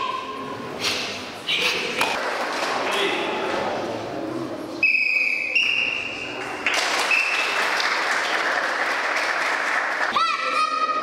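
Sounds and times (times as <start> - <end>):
referee's whistle blasts: 4.8 - 6.4
audience applause: 6.6 - 10.1.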